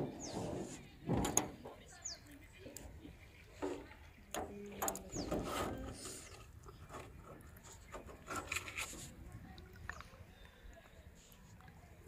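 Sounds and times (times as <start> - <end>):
scraping and rubbing in a boat: 0.0 - 1.8, 5.0 - 9.3.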